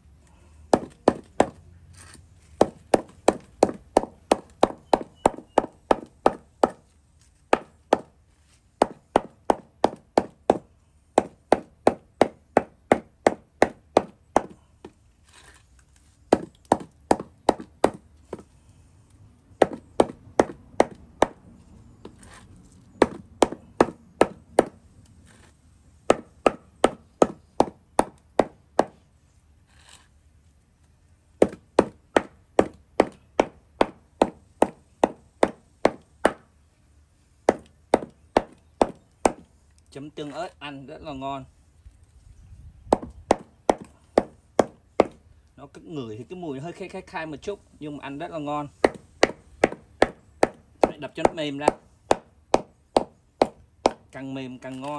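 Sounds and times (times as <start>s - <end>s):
hammer pounding on wooden block: 0.7s - 1.6s, 2.6s - 6.8s, 7.5s - 8.1s, 8.8s - 14.6s, 16.3s - 18.4s, 19.6s - 21.4s, 23.0s - 24.8s, 26.1s - 29.0s, 31.4s - 36.4s, 37.5s - 39.5s, 42.9s - 45.2s, 48.8s - 54.1s.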